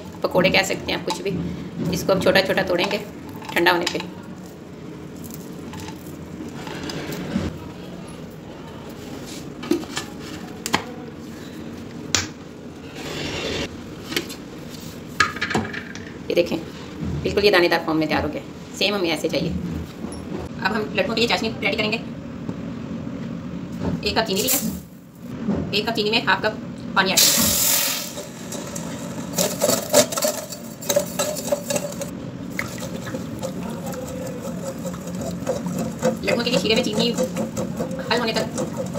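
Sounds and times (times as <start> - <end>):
spatula scraping metal pot: 32.8 - 38.9.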